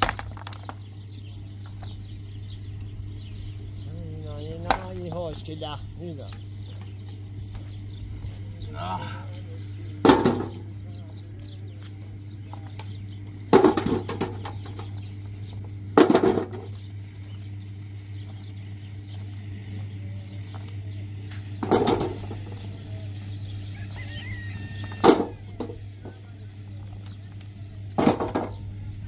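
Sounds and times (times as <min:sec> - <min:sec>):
stones clattering into wheelbarrow: 0:00.0 - 0:01.0, 0:10.0 - 0:10.7, 0:12.5 - 0:16.9, 0:20.5 - 0:22.8, 0:24.7 - 0:26.2, 0:26.8 - 0:28.7
low machine hum: 0:00.0 - 0:29.0.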